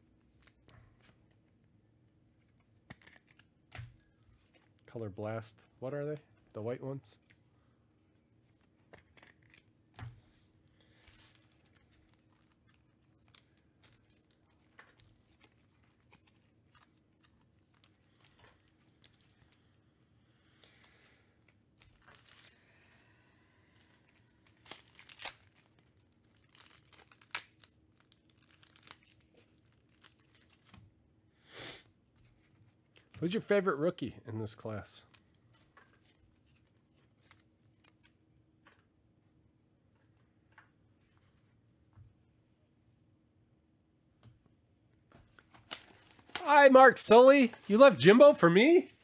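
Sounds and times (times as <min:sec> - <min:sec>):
trading cards clicking and rustling: 0:45.4 - 0:49.0.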